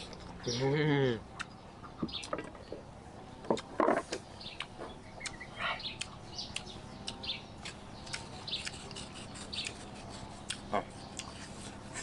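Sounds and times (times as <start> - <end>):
knife scraping mango skin: 8.2 - 10.6, 11.2 - 12.0.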